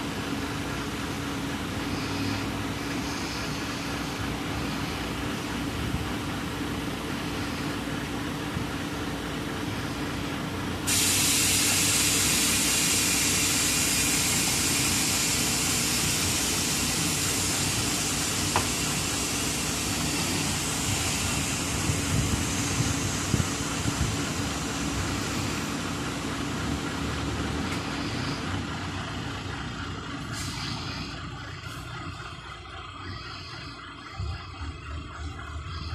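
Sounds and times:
truck engine humming: 0:00.0 - 0:35.9
loud hydraulic hiss: 0:10.8 - 0:25.8, 0:30.3 - 0:31.2.

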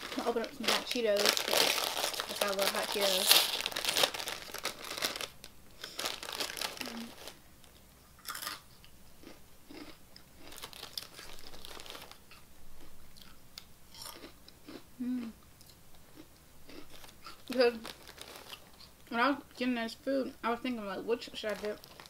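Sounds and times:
snack bag crinkling: 0:00.0 - 0:08.6, 0:09.8 - 0:12.4, 0:16.7 - 0:18.9, 0:21.3 - 0:22.0
crunching and chewing snacks: 0:00.0 - 0:19.0, 0:21.4 - 0:22.0.

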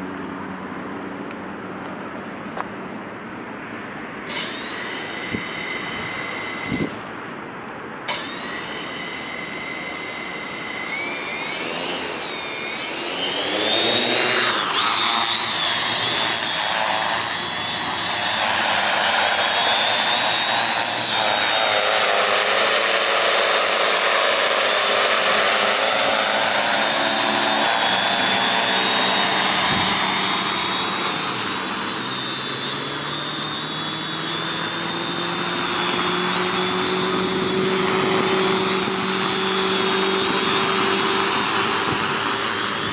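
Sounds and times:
propeller wash: 0:04.1 - 0:42.9
drone motors whining: 0:04.2 - 0:07.3, 0:08.0 - 0:42.9.

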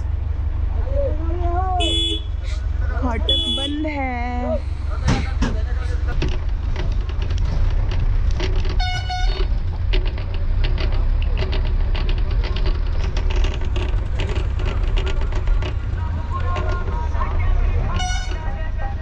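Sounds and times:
bus engine rumbling: 0:00.0 - 0:19.0
bus horn blast: 0:01.8 - 0:02.6, 0:03.2 - 0:03.8, 0:08.8 - 0:09.5, 0:17.8 - 0:18.6.

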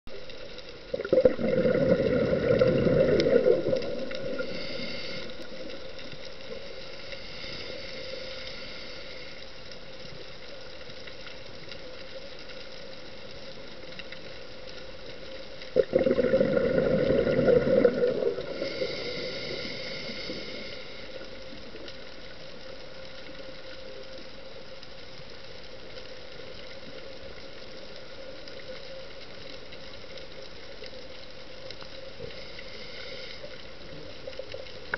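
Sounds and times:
faint hiss: 0:00.1 - 0:34.9
faint hum: 0:00.1 - 0:34.9
bubbles gurgling from regulator: 0:00.8 - 0:04.8, 0:15.8 - 0:20.2.

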